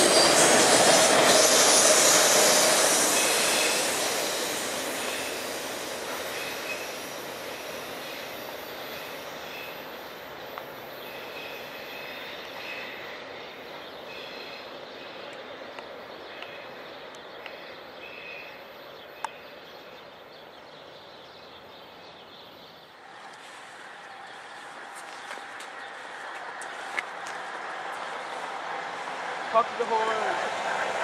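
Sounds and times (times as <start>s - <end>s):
high wheel squeal: 0.0s - 5.5s
train wheels rumbling on rail: 0.0s - 18.6s.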